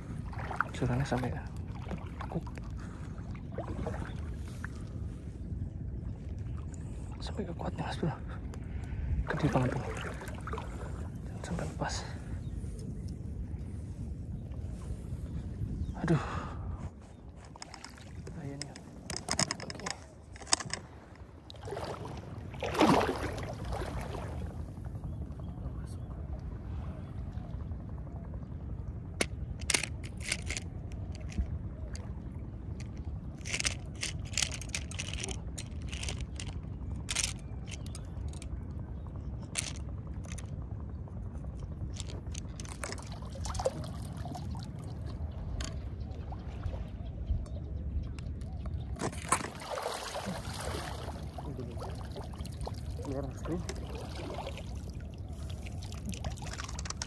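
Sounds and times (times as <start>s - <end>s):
seawater lapping and splashing: 0.0s - 15.7s, 16.6s - 25.0s, 41.5s - 57.0s
low rumble: 8.2s - 49.4s
sharp clicks and knocks: 18.6s - 20.8s
seawater splashing around rocks: 21.6s - 24.5s, 49.0s - 57.0s.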